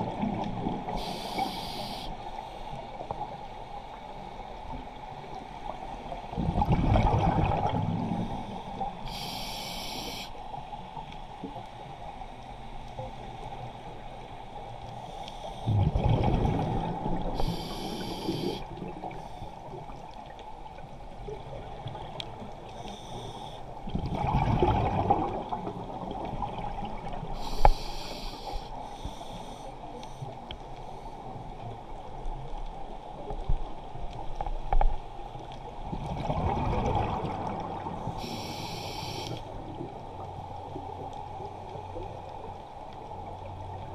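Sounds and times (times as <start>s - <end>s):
air hissing through regulator: 1.0s - 2.1s, 9.0s - 10.3s, 17.4s - 18.6s, 27.4s - 29.6s, 38.2s - 39.4s
gurgling exhaled bubbles: 6.3s - 8.2s, 15.7s - 19.2s, 23.9s - 27.1s, 36.0s - 37.9s.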